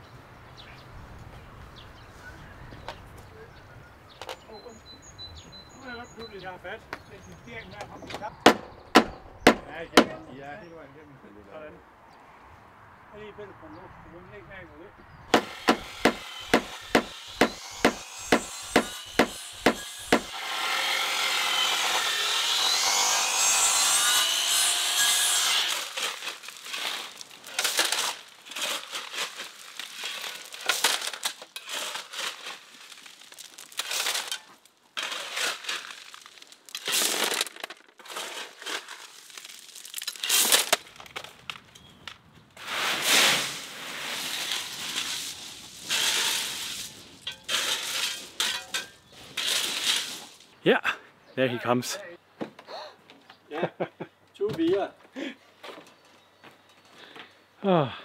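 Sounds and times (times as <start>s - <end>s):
shovel digging gravel: 15.4s - 20.4s, 24.3s - 41.4s, 42.6s - 50.5s
steady rasping: 15.4s - 20.4s.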